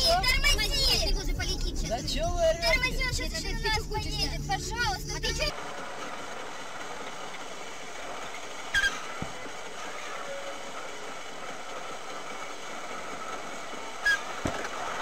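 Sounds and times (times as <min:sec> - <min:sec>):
vehicle road noise: 0:00.0 - 0:15.0
short high squeaks: 0:08.2 - 0:14.5.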